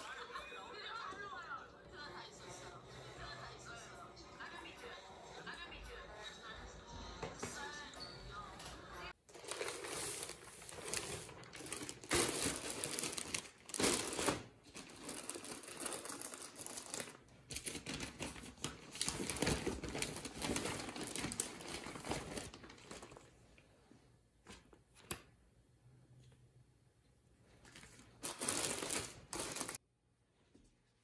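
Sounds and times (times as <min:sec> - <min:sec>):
packaging crinkling and rustling: 0:09.3 - 0:23.4, 0:27.6 - 0:29.8.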